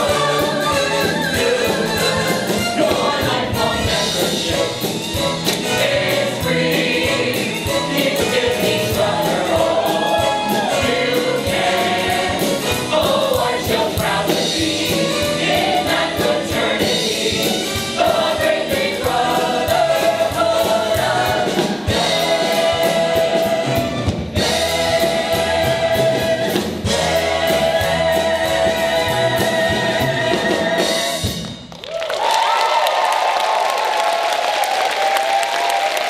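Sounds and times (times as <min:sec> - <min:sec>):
chorus singing show tune: 0:00.0 - 0:31.4
instrumental accompaniment: 0:00.0 - 0:31.7
audience applause and cheers: 0:09.7 - 0:11.1, 0:31.6 - 0:36.0.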